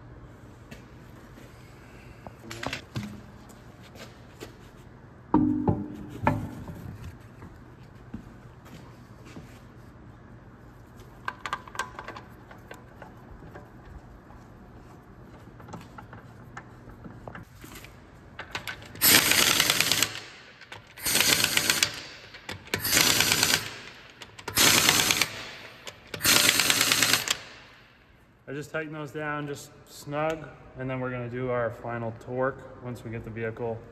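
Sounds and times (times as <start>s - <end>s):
impact wrench rattling: 18.4s - 27.8s.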